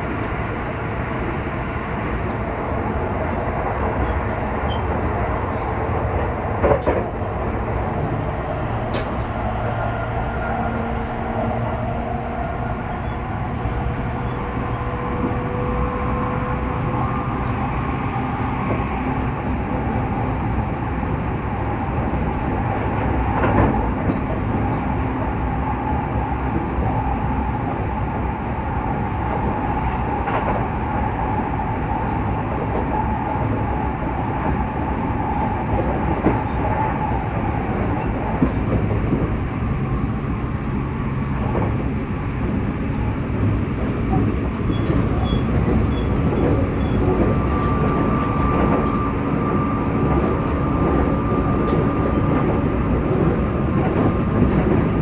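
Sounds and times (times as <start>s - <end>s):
faint train whine: 0.0s - 55.0s
wheels rumbling on rail: 0.0s - 55.0s.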